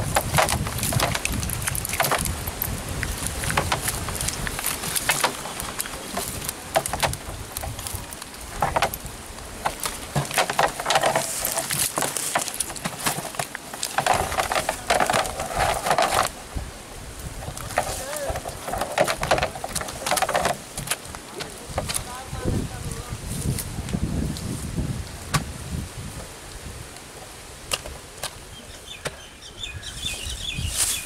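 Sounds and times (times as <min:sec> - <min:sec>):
fish and net rustling in drum: 0:00.0 - 0:23.8.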